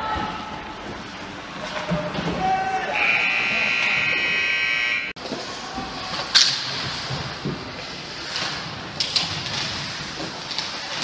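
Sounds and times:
noisy hall background: 0:00.0 - 0:11.0
ice rink buzzer: 0:03.0 - 0:05.2.

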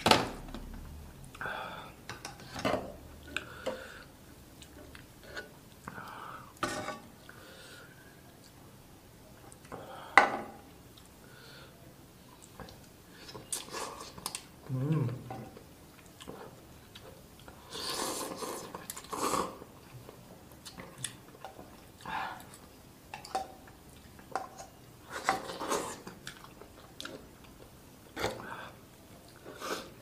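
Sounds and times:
noodles slurped and chewed: 0:12.4 - 0:22.8, 0:23.6 - 0:28.5
person humming: 0:14.6 - 0:15.4.

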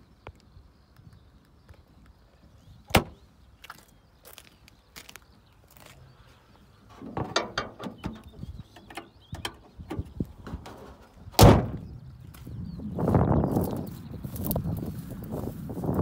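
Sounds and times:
car bonnet slamming shut: 0:02.9 - 0:03.2, 0:06.9 - 0:08.3, 0:09.3 - 0:11.8
metallic clicks and knocks: 0:07.0 - 0:10.9.

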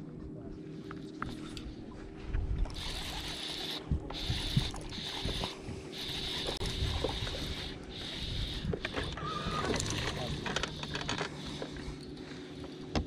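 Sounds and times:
fishing reel gears whirring: 0:02.6 - 0:13.0.

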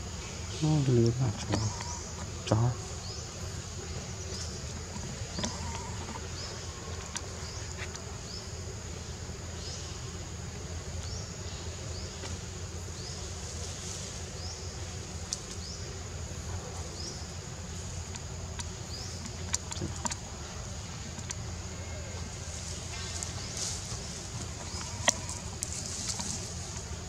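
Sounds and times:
faint clicks: 0:18.0 - 0:21.5.

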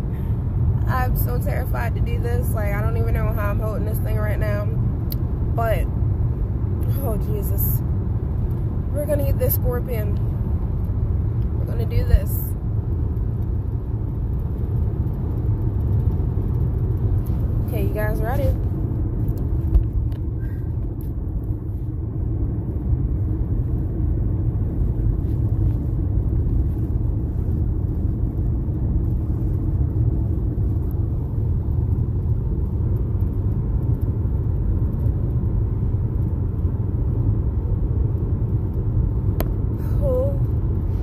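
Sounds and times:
car cabin rumble: 0:00.0 - 0:41.0.

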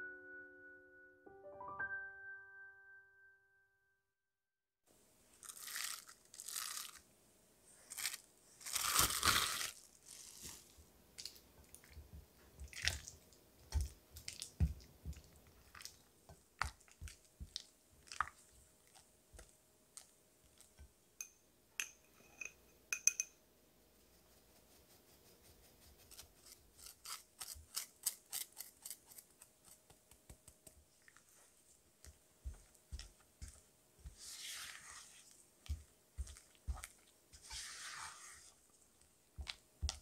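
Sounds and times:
spatula squishing and scraping: 0:09.0 - 0:20.9, 0:24.6 - 0:40.0.

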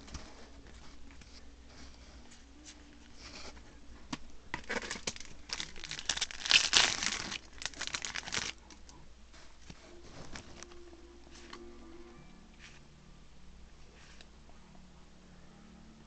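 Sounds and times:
foil pack crinkling: 0:04.5 - 0:08.8
foil pack tearing open: 0:04.6 - 0:08.6.

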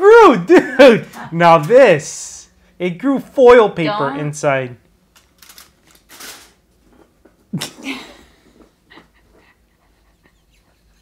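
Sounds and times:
person laughing breathily: 0:07.6 - 0:11.0.

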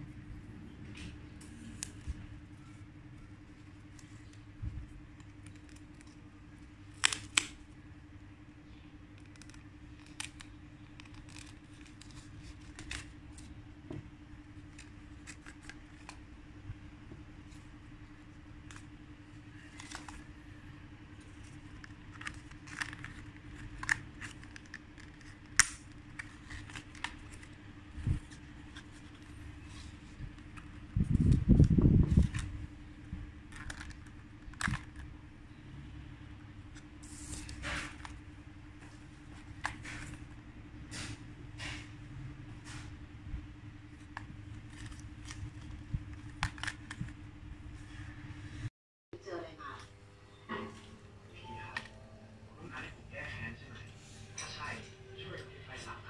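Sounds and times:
low steady hum: 0:00.0 - 0:56.0
cardboard being folded: 0:09.1 - 0:13.5, 0:17.5 - 0:20.4, 0:21.1 - 0:32.7, 0:37.0 - 0:38.2
paper crinkling: 0:09.1 - 0:13.6, 0:17.5 - 0:20.4, 0:21.1 - 0:32.6, 0:33.4 - 0:35.1.

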